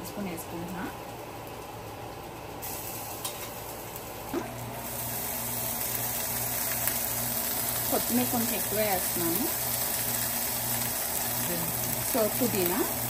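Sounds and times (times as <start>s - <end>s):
low steady hum: 0.0s - 13.0s
paste sizzling in hot oil: 4.7s - 13.0s.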